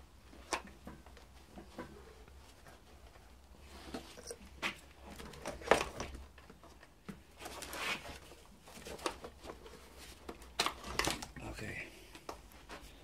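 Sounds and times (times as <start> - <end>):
rustling of wiring: 0.1 - 13.0
clicks and knocks of plastic parts: 4.7 - 7.7, 8.6 - 11.5.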